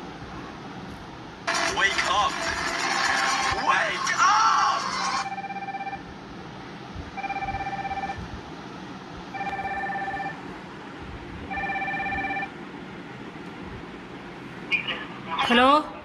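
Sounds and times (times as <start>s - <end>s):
electronic ringtone: 4.8s - 6.0s, 7.2s - 8.2s, 9.4s - 10.4s, 11.5s - 12.5s.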